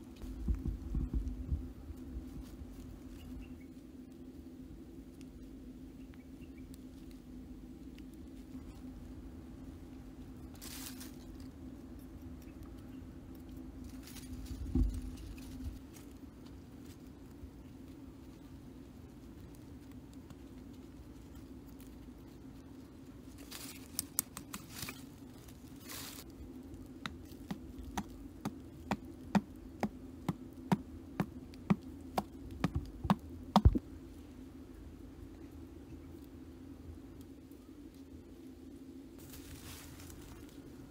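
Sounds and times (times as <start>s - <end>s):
rustling of grass and twigs: 0.0s - 40.9s
steady low hum: 0.0s - 40.9s
stone pounding the ground: 30.3s - 33.8s.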